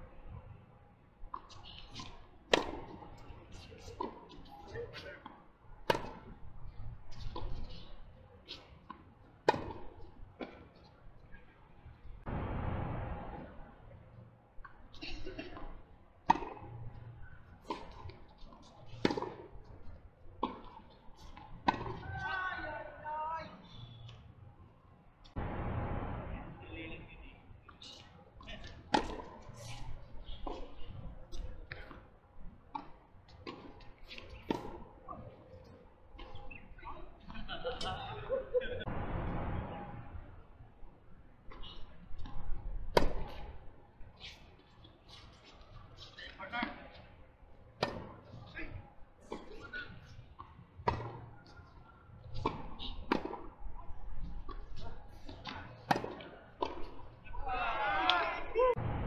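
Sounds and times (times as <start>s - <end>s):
tennis ball bouncing on hard court: 1.3s - 3.0s, 16.3s - 16.7s, 19.0s - 19.5s, 20.4s - 22.0s, 28.9s - 29.4s, 32.7s - 34.8s, 42.9s - 43.4s, 50.8s - 51.3s, 52.4s - 53.5s, 55.3s - 57.0s
tennis ball struck by rackets: 2.0s - 3.0s, 5.2s - 6.4s, 16.3s - 16.7s, 19.0s - 19.5s, 20.4s - 22.0s, 28.9s - 29.4s, 42.9s - 43.4s, 47.8s - 48.2s, 50.8s - 51.3s, 52.4s - 53.5s, 55.3s - 57.0s.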